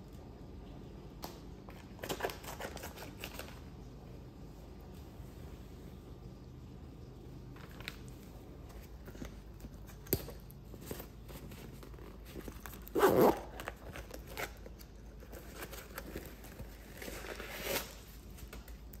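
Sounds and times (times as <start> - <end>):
paper and packaging rustling: 1.7 - 3.7, 7.6 - 19.0.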